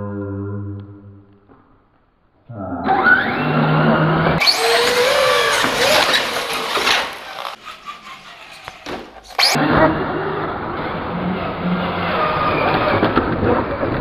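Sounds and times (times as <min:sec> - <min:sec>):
electric motors whining: 0:04.4 - 0:07.6.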